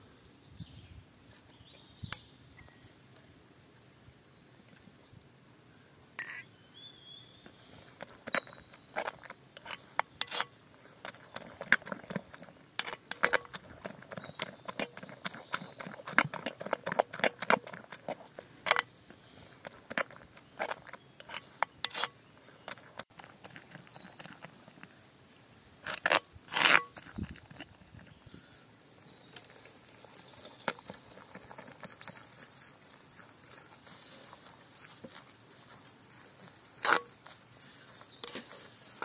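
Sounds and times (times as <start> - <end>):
spoon beating batter in bowl: 8.0 - 18.9.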